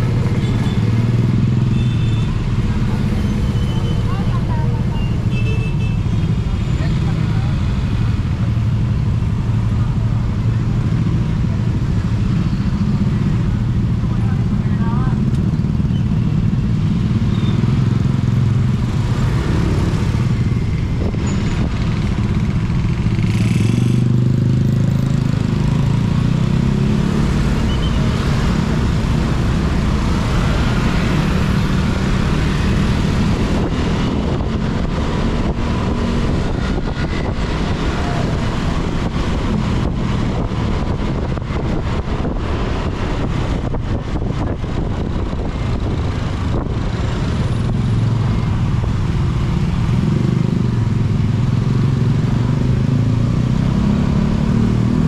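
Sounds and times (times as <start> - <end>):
traffic hum: 0.0 - 55.0
wind buffeting microphone: 31.4 - 49.9.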